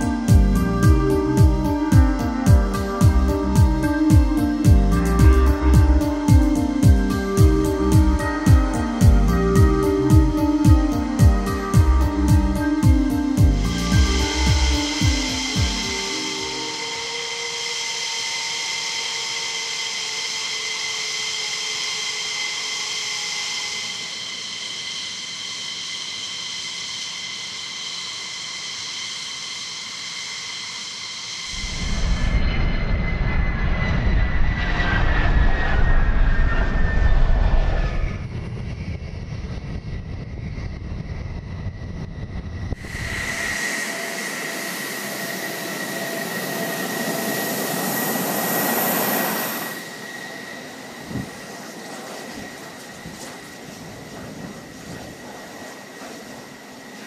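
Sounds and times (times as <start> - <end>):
jet engines whining: 0.0 - 57.0
jet roar of fighter taking off: 13.8 - 57.0.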